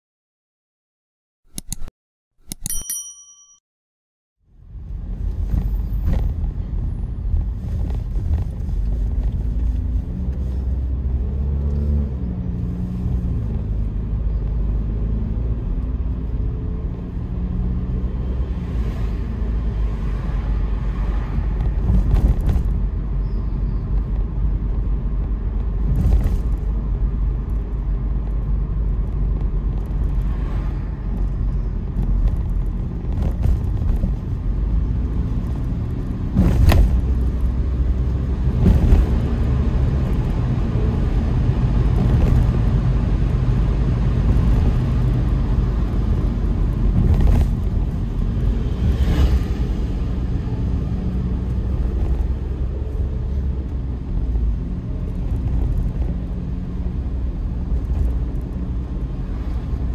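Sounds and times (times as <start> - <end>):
car engine and road rumble: 4.4 - 59.9.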